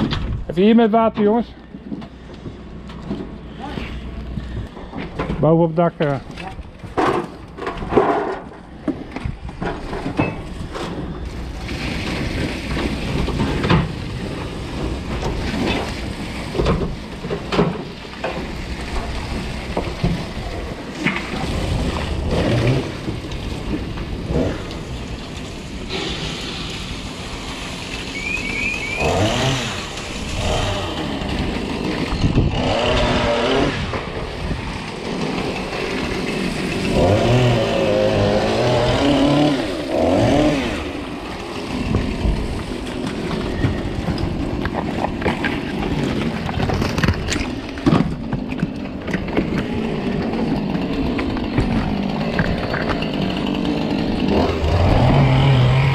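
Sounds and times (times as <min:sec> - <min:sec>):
knocks and clatter: 0:06.1 - 0:24.6, 0:41.9 - 0:53.3
fire hose spraying water: 0:10.5 - 0:46.7.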